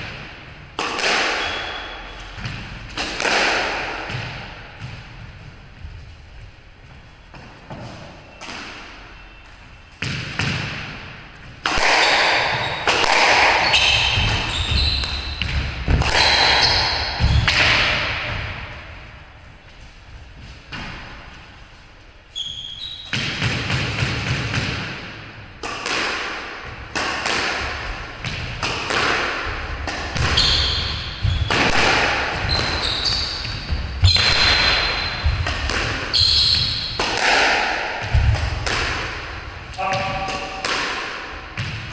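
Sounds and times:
squash ball hits: 0.0 - 5.5, 10.0 - 19.3, 23.0 - 41.9
sneakers squeaking on wooden floor: 1.4 - 2.9, 4.0 - 10.8, 11.4 - 23.5, 29.5 - 37.0.

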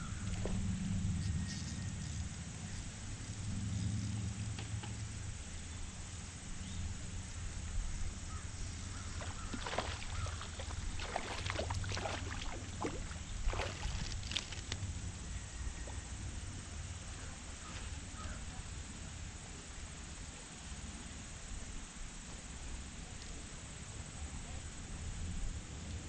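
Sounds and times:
steady low rumble: 0.0 - 19.5
fish splashing in water: 8.9 - 14.8.

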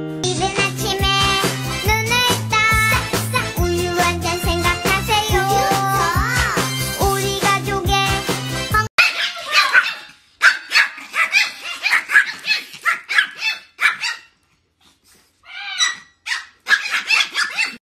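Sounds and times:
puppy barking high-pitched yaps: 9.0 - 14.4, 15.5 - 17.8.

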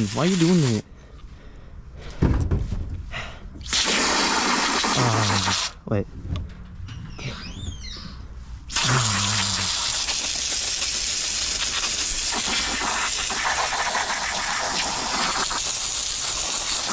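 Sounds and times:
hose nozzle jet hissing: 0.0 - 0.8, 3.6 - 5.8, 8.7 - 16.9.

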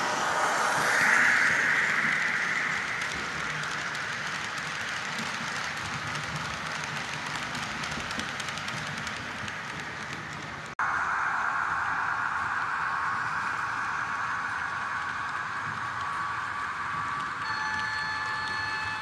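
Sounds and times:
faint rapid clicking: 2.6 - 10.8
model train motor whine: 15.0 - 19.0.

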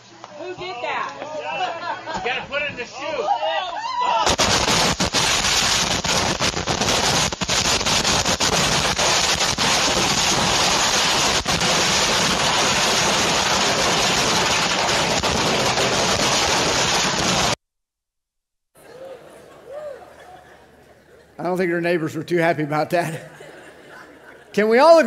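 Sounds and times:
fireworks barrage: 4.2 - 17.6
sharp firework bangs: 4.2 - 17.6.

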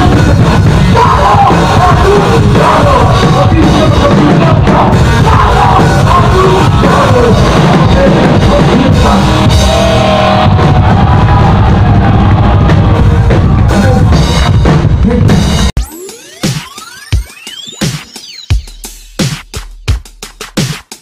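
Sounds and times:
rock band playing live: 0.0 - 15.8
heavy bass drum: 0.0 - 16.6, 17.9 - 21.0.

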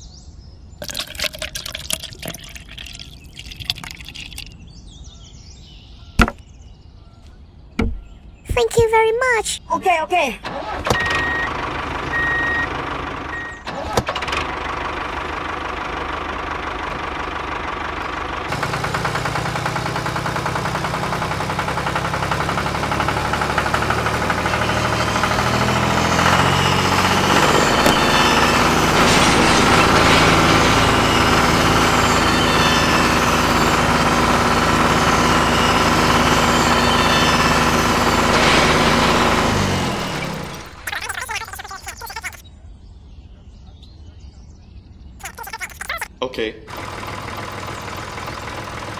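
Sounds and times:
tractor engine running: 10.4 - 42.4, 46.7 - 48.9
deeper engine note: 14.5 - 40.8.

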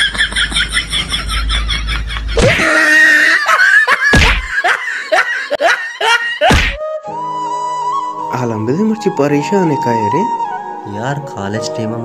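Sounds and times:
loud laughter: 0.0 - 6.6.

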